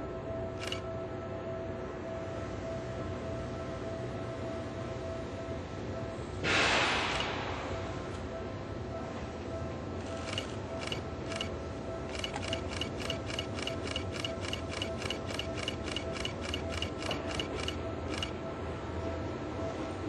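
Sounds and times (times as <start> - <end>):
electric train running: 0.0 - 1.3, 10.0 - 19.2
rapid metallic ticking: 0.6 - 0.8, 10.0 - 18.4.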